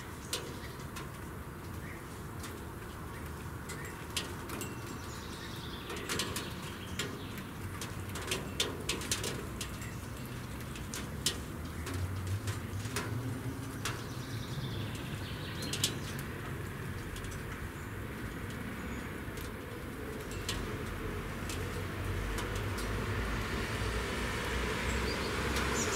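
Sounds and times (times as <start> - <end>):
small birds chirping: 0.0 - 19.3, 24.8 - 25.9.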